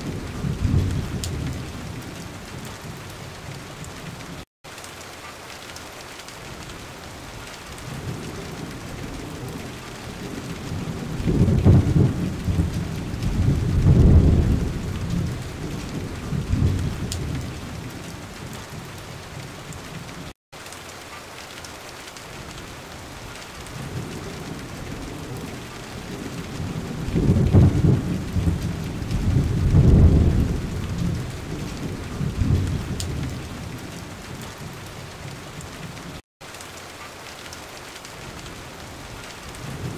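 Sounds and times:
low rolling thunder: 0.0s - 4.2s, 7.8s - 20.2s, 23.7s - 36.0s, 39.5s - 39.9s
steady rain: 0.0s - 39.9s.

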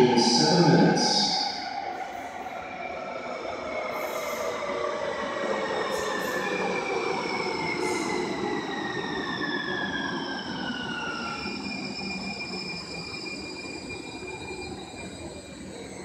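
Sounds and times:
high wheel squeals: 5.9s - 16.0s.

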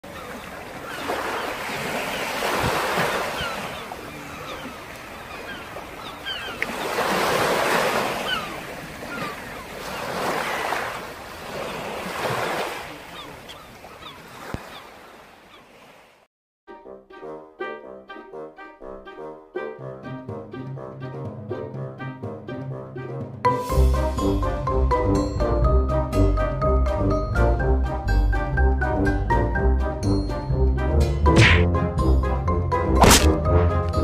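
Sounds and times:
ocean waves washing onto beach: 0.1s - 15.2s.

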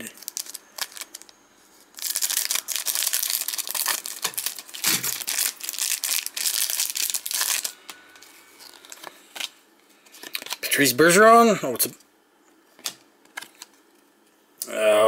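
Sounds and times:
plastic wrapping crinkling: 0.0s - 10.7s.

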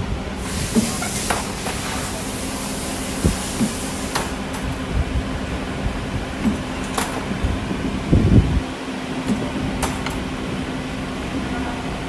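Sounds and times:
spring forming machine humming: 0.0s - 12.0s
tooling knocks and clicks: 9.2s - 10.2s.

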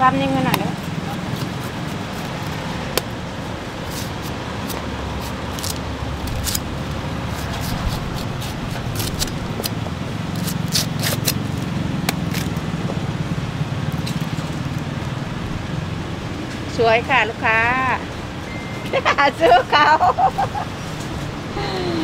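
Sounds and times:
low traffic rumble: 0.0s - 22.0s
knife cracking spiky husk: 3.9s - 6.7s, 7.3s - 9.8s, 10.4s - 11.4s.

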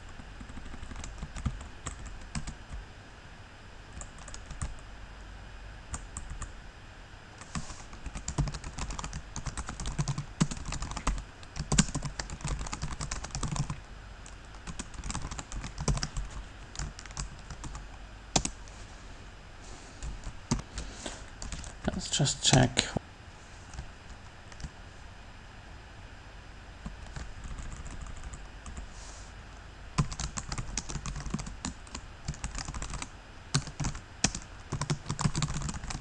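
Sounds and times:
typing on computer keyboard: 0.1s - 2.6s, 4.0s - 4.8s, 7.4s - 13.8s, 14.4s - 17.8s, 18.4s - 18.6s, 26.9s - 28.8s, 30.0s - 36.0s.

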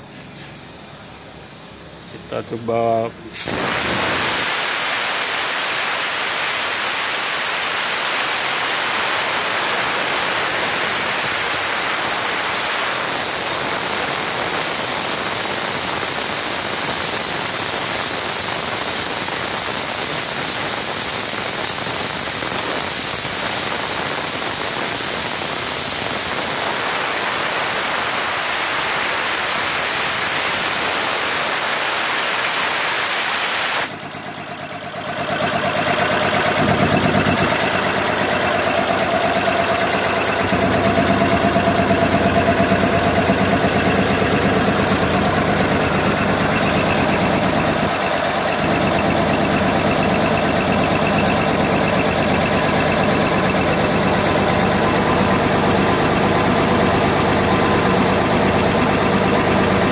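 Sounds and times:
compressed air hissing: 0.0s - 1.2s, 3.3s - 34.1s
rhythmic machine sound: 33.9s - 59.9s.

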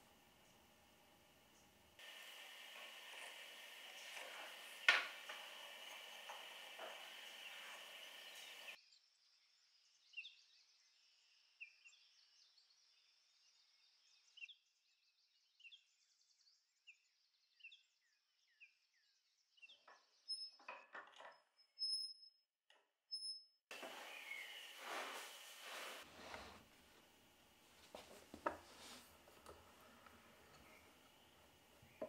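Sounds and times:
birds chirping: 0.0s - 8.8s, 23.7s - 26.7s, 27.9s - 32.0s
steady hiss: 0.0s - 8.8s, 23.7s - 32.0s.

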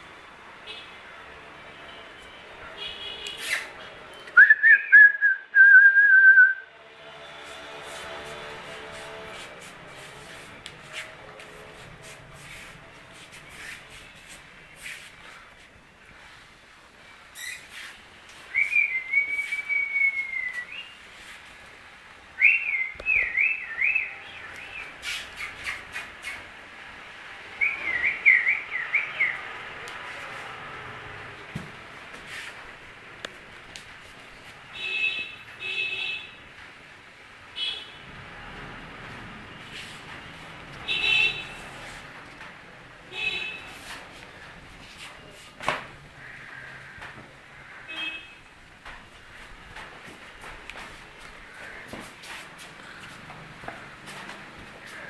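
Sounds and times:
person whistling: 4.4s - 6.6s, 18.6s - 20.8s.

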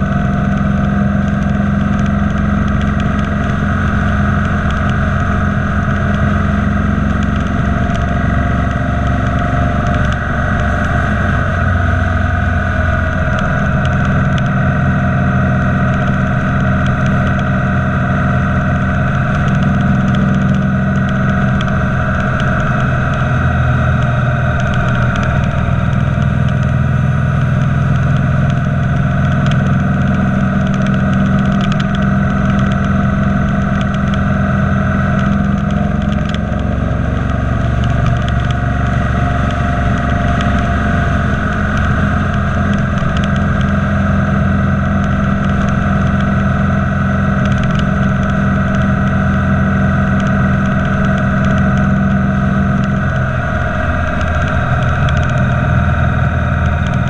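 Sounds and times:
motorcycle engine running: 0.0s - 57.0s
wind and road noise: 0.0s - 57.0s.

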